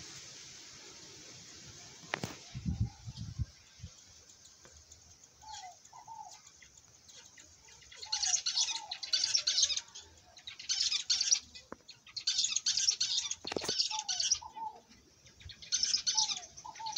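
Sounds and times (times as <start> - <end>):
high hissy bird sounds: 0.0 - 16.9
doves cooing softly: 5.4 - 6.6, 13.0 - 16.9.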